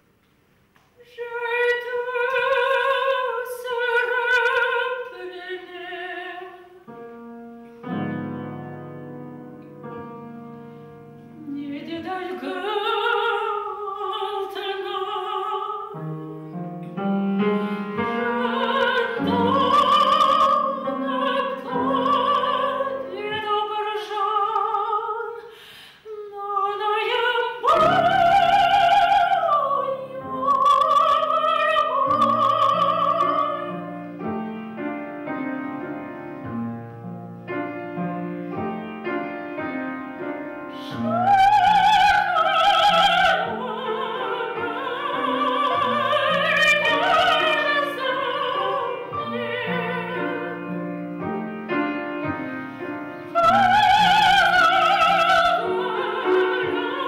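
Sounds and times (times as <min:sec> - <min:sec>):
grand piano: 0:00.0 - 0:57.0
woman singing opera: 0:01.0 - 0:06.8, 0:11.4 - 0:16.4, 0:17.4 - 0:34.5, 0:40.7 - 0:51.2, 0:53.2 - 0:57.0.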